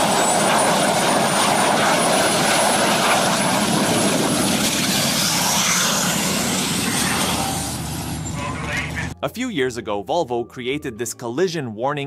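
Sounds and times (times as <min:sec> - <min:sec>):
high whine climbing in pitch: 0:00.0 - 0:09.2
turbine engine rushing and whistling: 0:00.0 - 0:09.2.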